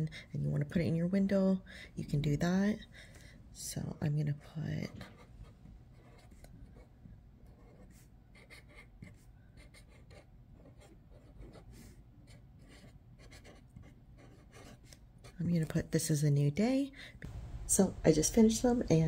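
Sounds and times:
marker writing on paper: 5.9s - 15.4s.

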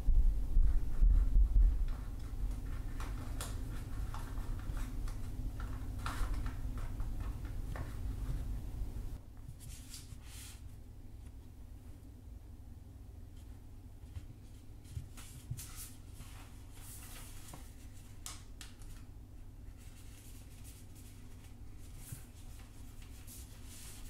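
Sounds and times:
steady low hum: 0.0s - 18.2s
paper rustling and tapping: 1.8s - 8.6s, 14.1s - 19.1s, 19.8s - 24.0s.

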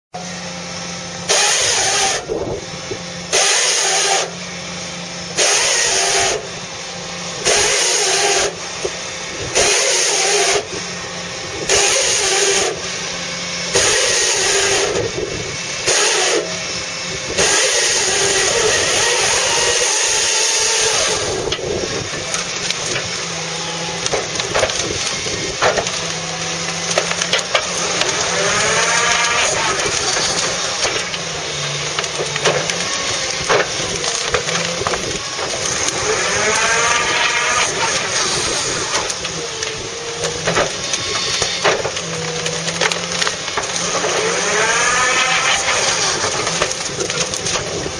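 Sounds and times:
diesel engine running: 0.1s - 47.9s
sharp cracks: 17.4s - 47.9s.

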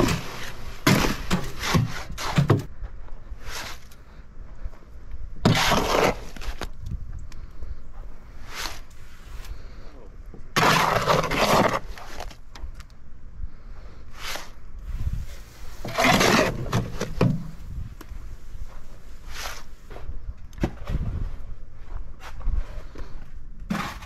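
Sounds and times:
shovel scraping wet concrete: 0.0s - 2.6s, 3.4s - 3.9s, 5.4s - 6.7s, 8.4s - 9.6s, 10.5s - 12.4s, 14.1s - 17.4s, 19.2s - 19.7s, 23.7s - 24.0s.

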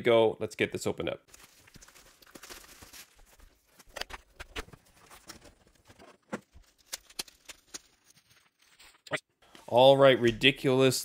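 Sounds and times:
cardboard and plastic rustling: 1.3s - 9.0s.

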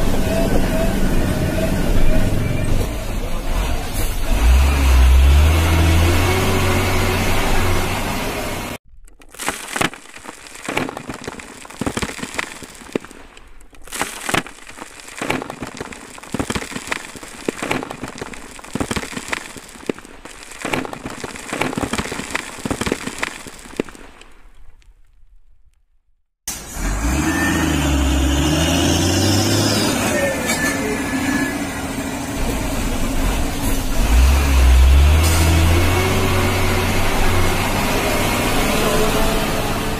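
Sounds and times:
stones rattling into plastic toy truck: 8.8s - 24.1s.

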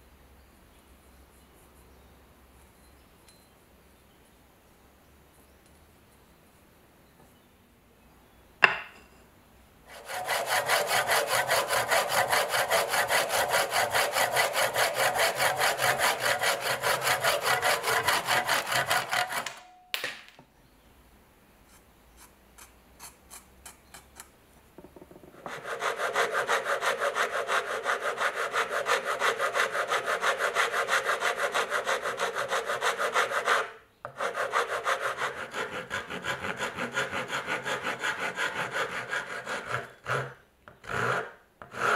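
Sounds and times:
sharp knock: 8.6s - 9.1s
hand saw cutting wood: 9.9s - 19.7s, 25.4s - 41.9s.

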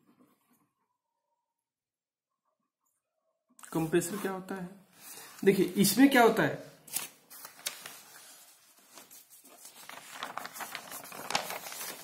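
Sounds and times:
paper pages rustling: 6.8s - 12.0s.

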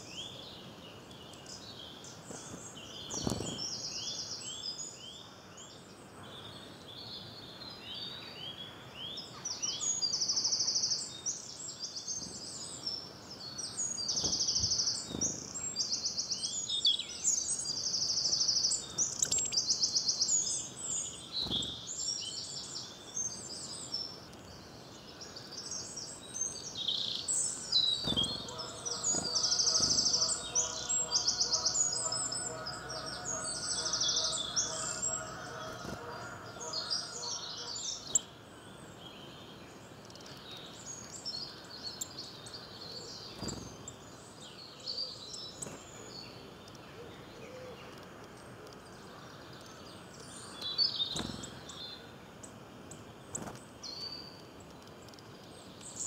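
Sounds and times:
songbirds chirping: 0.0s - 56.0s
rapid bird trills: 13.9s - 16.9s, 17.6s - 22.4s, 27.2s - 38.3s, 50.4s - 52.1s.

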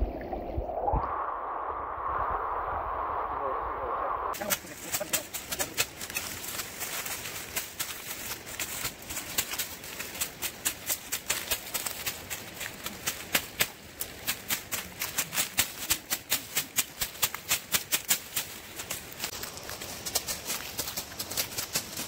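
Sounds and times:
crackling through dry leaves: 4.4s - 22.0s.

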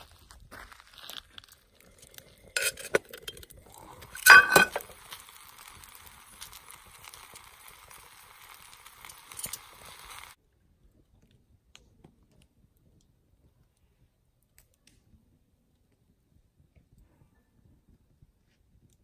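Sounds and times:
garlic sizzling and crackling in pot: 1.0s - 10.4s
cast-iron lid clanking: 2.6s - 3.4s, 4.2s - 4.9s.

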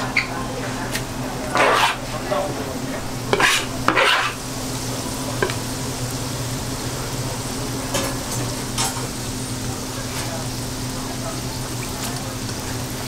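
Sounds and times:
deep-frying sizzling hiss: 0.0s - 13.0s
low steady hum: 2.1s - 11.6s.

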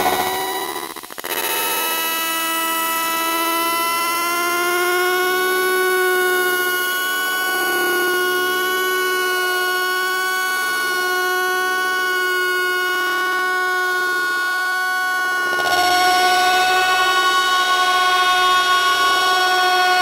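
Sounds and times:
loud steady drone: 0.0s - 1.2s.

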